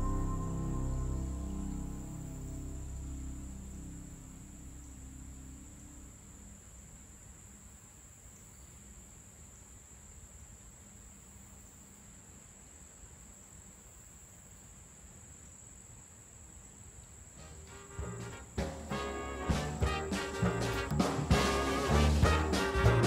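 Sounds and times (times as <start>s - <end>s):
music: 0.0s - 5.8s, 17.4s - 23.0s
insects chirping: 0.0s - 23.0s.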